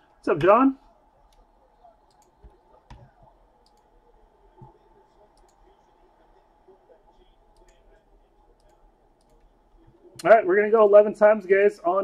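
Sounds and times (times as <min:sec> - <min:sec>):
computer mouse clicks: 0:02.1 - 0:03.9, 0:05.4 - 0:05.6, 0:08.6 - 0:09.5.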